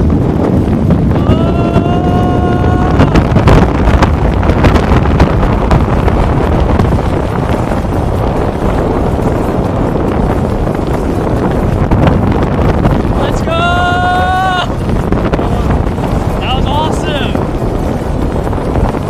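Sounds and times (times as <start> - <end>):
freefall wind buffeting microphone: 0.0 - 19.0
person yelling: 1.1 - 3.3, 13.2 - 14.7.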